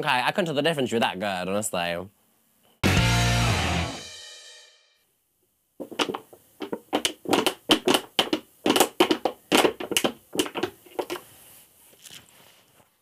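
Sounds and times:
plastic bottle crinkling: 11.9s - 12.3s.

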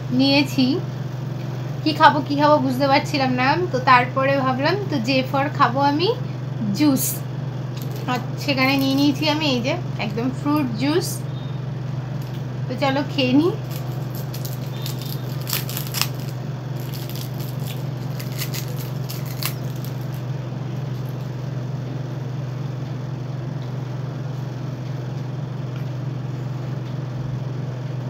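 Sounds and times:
steady low hum: 0.0s - 28.0s
plastic wrapper crinkling: 7.8s - 9.2s, 13.6s - 20.3s.

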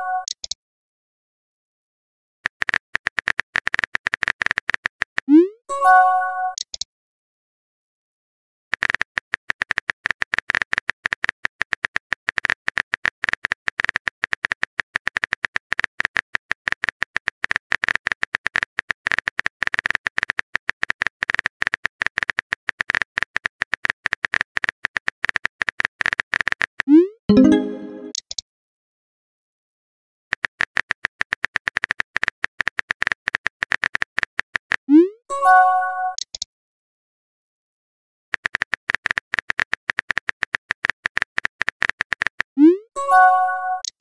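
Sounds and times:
keyboard key clicks: 38.4s - 42.5s.

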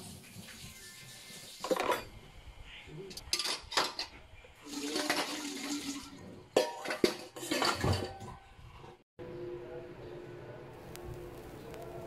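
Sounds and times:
water running: 0.0s - 2.0s, 4.6s - 6.3s
pots and utensils clattering: 1.5s - 2.2s, 3.1s - 9.0s.

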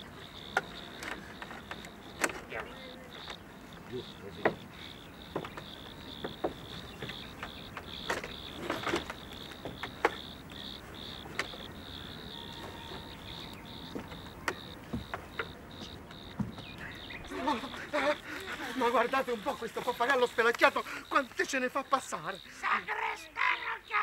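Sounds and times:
cricket chirping: 0.0s - 24.0s.

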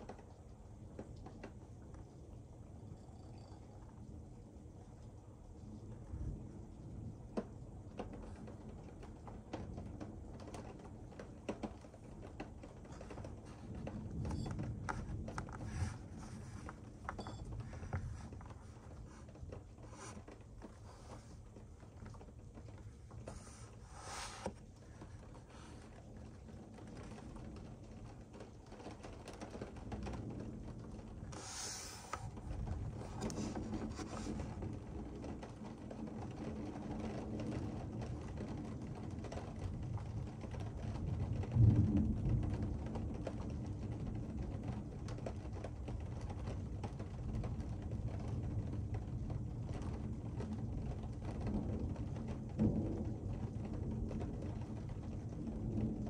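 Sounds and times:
distant thunder rumbling: 32.3s - 45.4s, 48.7s - 56.0s.

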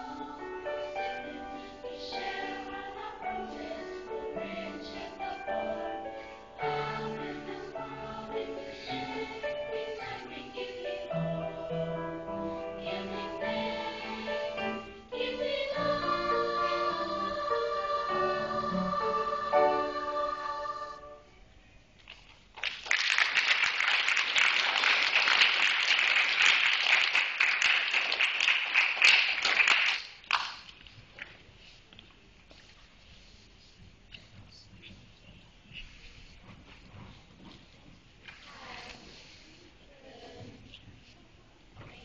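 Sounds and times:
girls' chorus singing: 0.0s - 21.3s
audience applauding: 22.6s - 30.6s.

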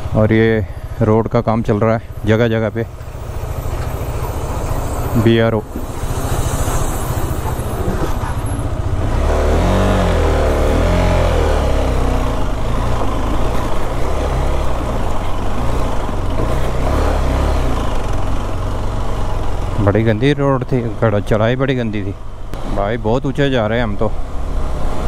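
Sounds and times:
motorcycle engine at low speed: 0.0s - 25.0s.

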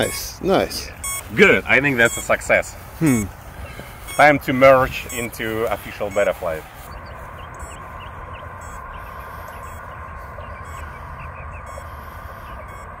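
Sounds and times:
short chirps: 0.0s - 9.9s
high drone: 0.0s - 13.0s.

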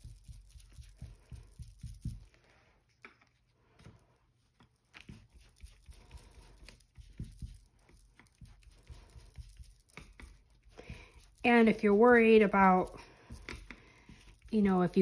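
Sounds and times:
brush tapping on ink pad and paper: 0.0s - 2.4s, 6.7s - 11.3s.

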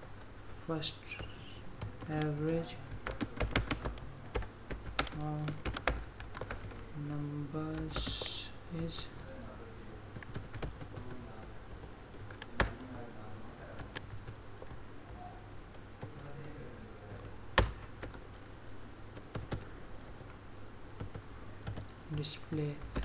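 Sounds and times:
faint low hum: 0.0s - 23.0s
computer keyboard keystrokes: 1.2s - 6.9s, 7.7s - 8.4s, 10.1s - 13.0s, 13.8s - 14.8s, 16.0s - 18.5s, 19.2s - 19.7s, 20.9s - 23.0s.

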